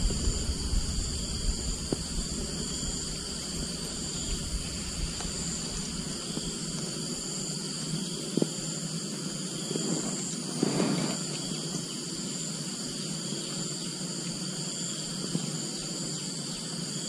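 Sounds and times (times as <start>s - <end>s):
low microphone rumble: 0.0s - 6.7s
insects chorus: 0.0s - 17.0s.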